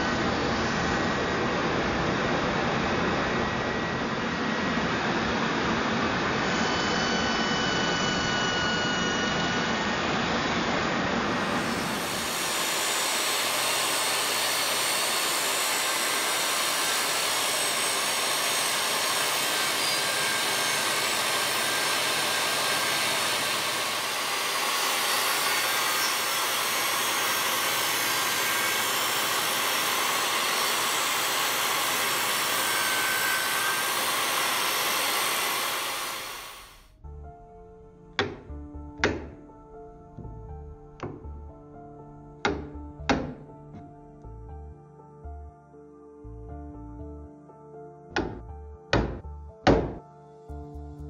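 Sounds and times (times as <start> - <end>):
table saw cutting wood: 4.1 - 36.9, 42.5 - 43.6, 48.2 - 50.0.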